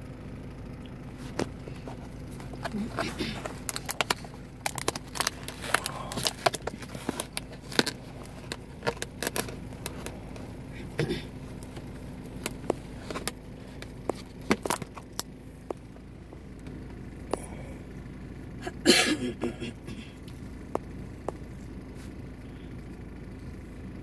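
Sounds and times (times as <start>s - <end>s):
faint low hum: 0.0s - 24.0s
plastic tray crinkling: 1.2s - 10.5s, 11.6s - 15.3s.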